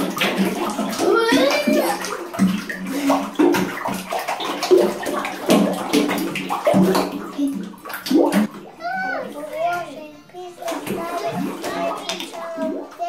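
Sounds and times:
hands splashing slime water: 0:00.0 - 0:08.5.

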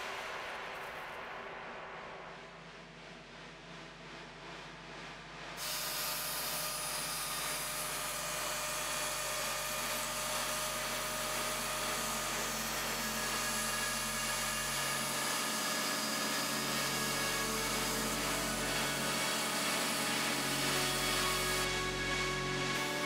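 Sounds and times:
end mill cutting aluminium: 0:05.6 - 0:23.0
router spindle whining: 0:05.6 - 0:23.0.

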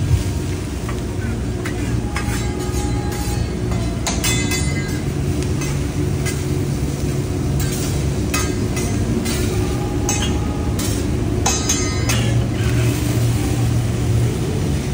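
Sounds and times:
steady low rumble: 0:00.0 - 0:14.9
metal spatula scraping griddle: 0:00.9 - 0:06.7, 0:07.6 - 0:13.3.

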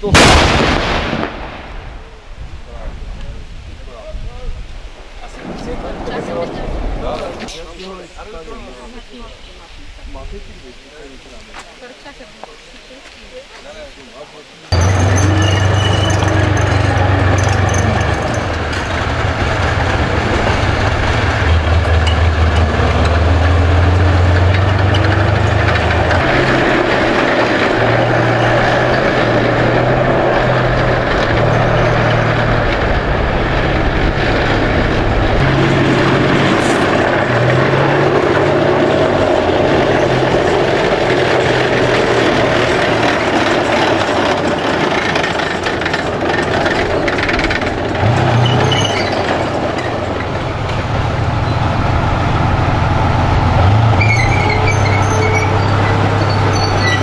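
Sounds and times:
tank diesel engine running: 0:14.7 - 0:57.0.

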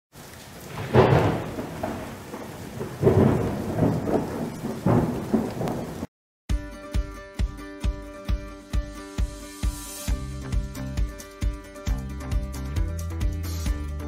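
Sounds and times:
rain hissing: 0:00.1 - 0:06.1, 0:08.9 - 0:12.7
thunder rumbling: 0:00.2 - 0:06.1
music with steady beat: 0:06.5 - 0:14.0.

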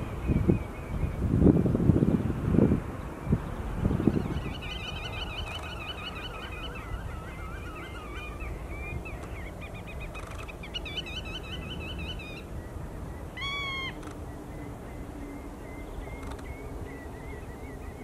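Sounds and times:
godwits calling: 0:04.1 - 0:18.0.

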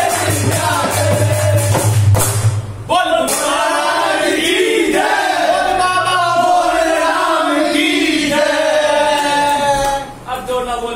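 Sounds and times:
men singing in chorus: 0:00.0 - 0:01.8, 0:03.1 - 0:10.2
hand-clapping: 0:00.0 - 0:02.6, 0:03.3 - 0:03.6.

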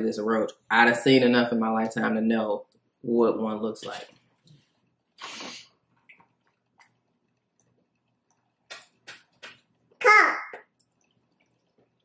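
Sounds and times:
mouth slurping drink: 0:05.2 - 0:05.7.

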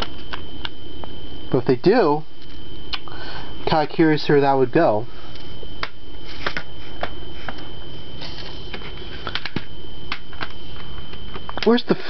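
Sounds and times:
faint high whine: 0:00.0 - 0:12.0
plastic cd cases clicking: 0:09.3 - 0:10.6.

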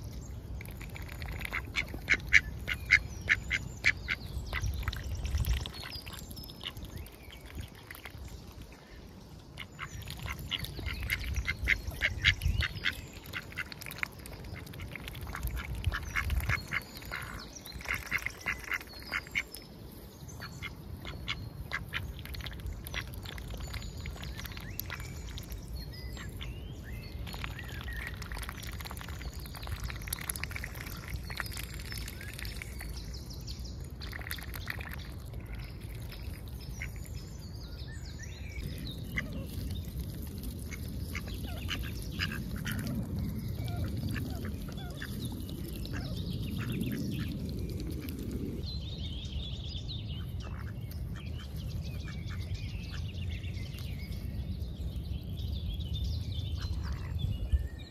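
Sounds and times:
bills dabbling in water: 0:00.0 - 0:48.8
ducks quacking quietly: 0:00.6 - 0:08.1, 0:09.6 - 0:19.5, 0:20.4 - 0:23.5, 0:39.0 - 0:47.4, 0:50.2 - 0:53.1.

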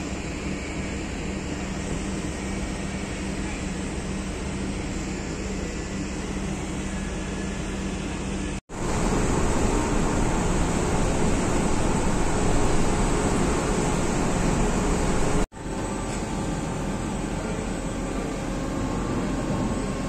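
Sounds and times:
ship machinery hum: 0:00.0 - 0:20.0
low drone: 0:08.7 - 0:20.0.

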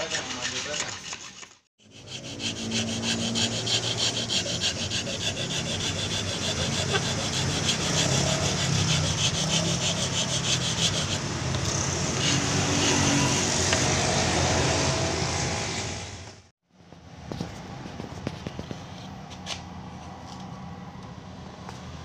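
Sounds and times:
file rasping on wood and horn: 0:00.0 - 0:14.1.

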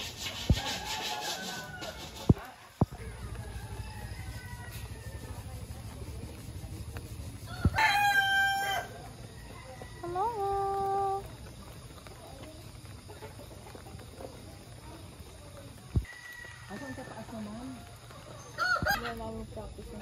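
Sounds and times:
rooster crowing: 0:00.5 - 0:02.3, 0:03.2 - 0:05.7, 0:07.5 - 0:10.8, 0:16.1 - 0:19.2.

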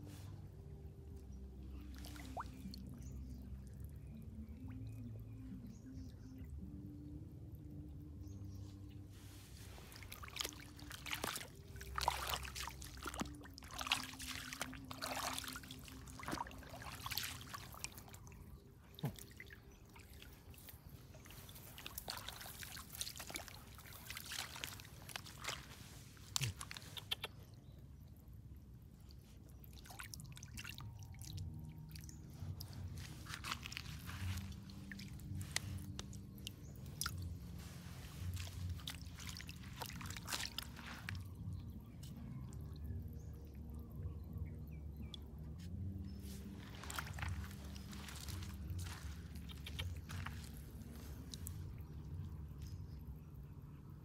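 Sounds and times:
low steady hum: 0:00.0 - 0:54.0
wet mud squelching by hand: 0:01.7 - 0:03.1, 0:09.2 - 0:27.5, 0:29.0 - 0:42.7, 0:44.9 - 0:53.0.

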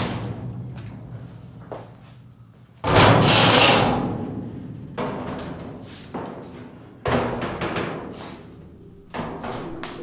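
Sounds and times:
background music: 0:08.3 - 0:10.0.

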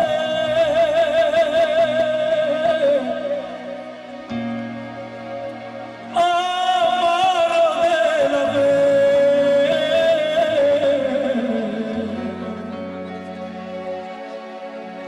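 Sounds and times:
man singing into a microphone: 0:00.0 - 0:04.2, 0:06.0 - 0:13.9
sustained instrumental chords: 0:00.0 - 0:15.0.

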